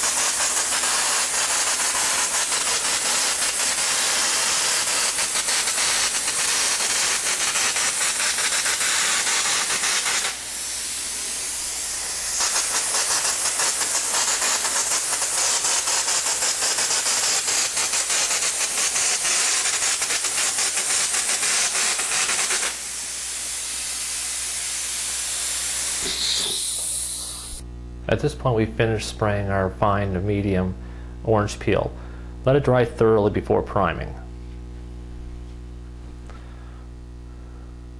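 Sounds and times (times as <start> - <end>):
spray gun hissing and spattering: 0.0 - 27.6.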